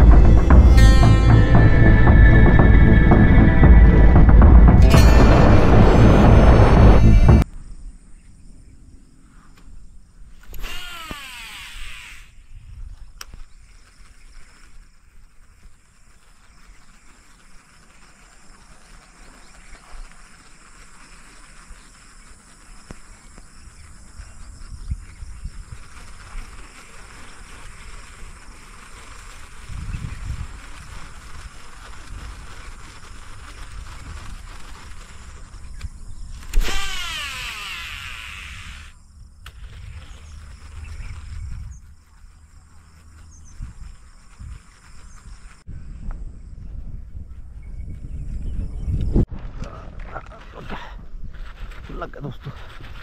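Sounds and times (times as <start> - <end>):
insects hissing: 7.6 - 46.5
fishing reel spool whirring: 10.5 - 12.4, 36.5 - 39.0
wind rumble on microphone: 12.4 - 17.4, 21.5 - 38.0, 39.1 - 53.0.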